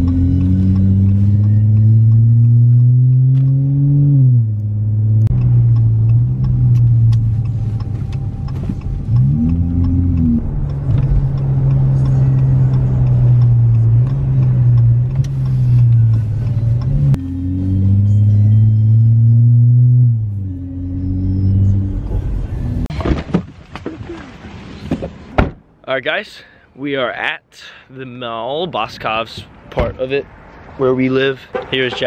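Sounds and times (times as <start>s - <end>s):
car engine from inside cabin: 0.0s - 22.9s.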